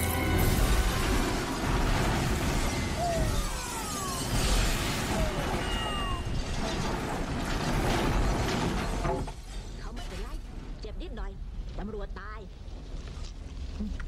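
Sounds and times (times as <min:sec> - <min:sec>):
explosion rumbling blast: 0:00.0 - 0:09.4
debris crashing and shattering: 0:00.0 - 0:10.8.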